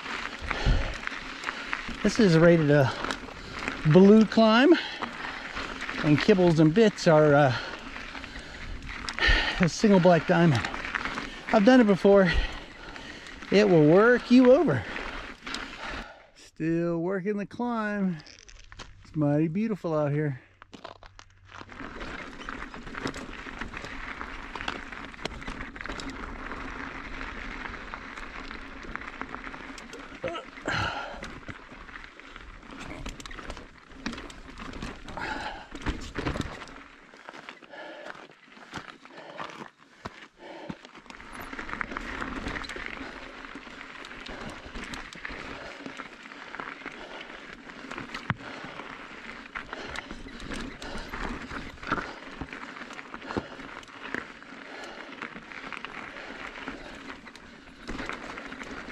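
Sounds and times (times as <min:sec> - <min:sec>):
bike tyres crunching on gravel: 0:00.0 - 0:16.4, 0:17.6 - 0:58.9
stones clicking and popping: 0:20.6 - 0:32.1.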